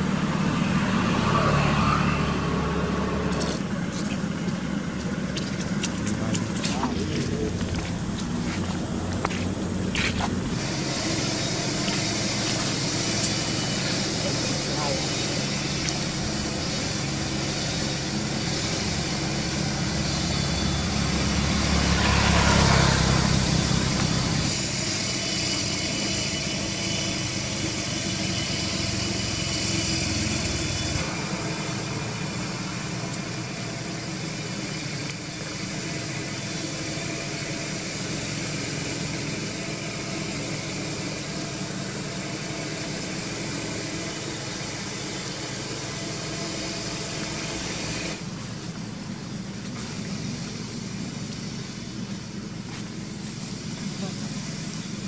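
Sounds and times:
vehicle passing: 0:00.0 - 0:25.0
steady road hiss: 0:00.0 - 0:55.0
traffic engine rumble: 0:00.0 - 0:55.0.

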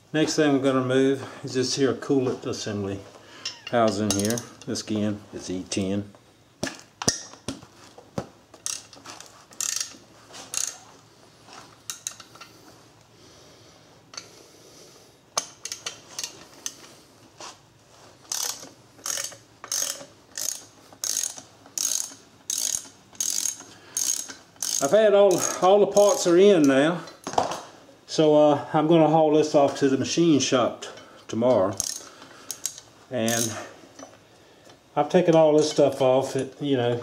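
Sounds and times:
hand socket ratchet clicking: 0:08.6 - 0:08.9, 0:09.6 - 0:10.8, 0:15.4 - 0:16.8, 0:18.3 - 0:26.8, 0:31.7 - 0:33.6.

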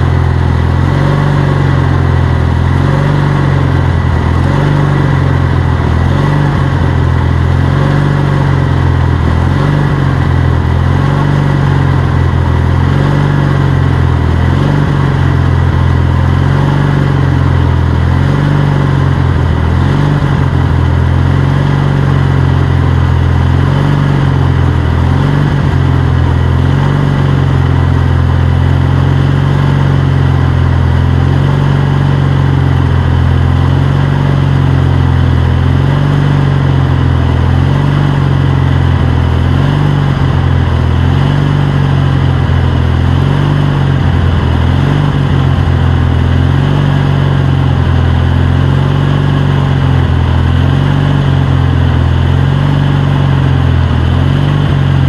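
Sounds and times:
tractor engine running steadily: 0:00.0 - 0:55.0.

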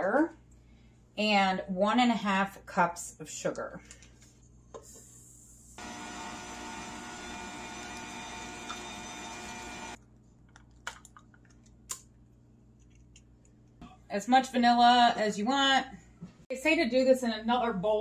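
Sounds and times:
stand mixer motor whine: 0:05.8 - 0:10.0.

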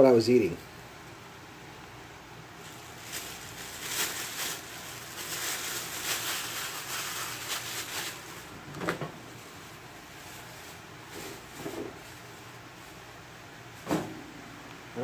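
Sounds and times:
plastic bag crinkling: 0:02.6 - 0:13.1.

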